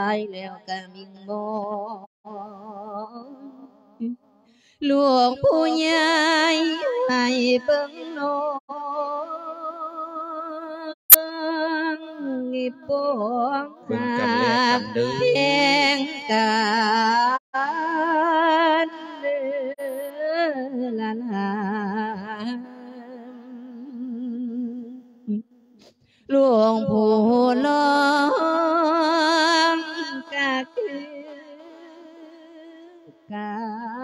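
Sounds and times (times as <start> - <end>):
person chanting: 13.9 - 15.8.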